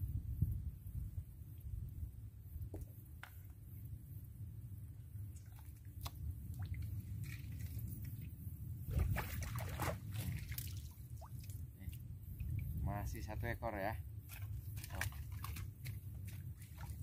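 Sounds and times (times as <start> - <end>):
steady low rumble: 3.6 - 14.3
water splashing and trickling: 5.1 - 17.0.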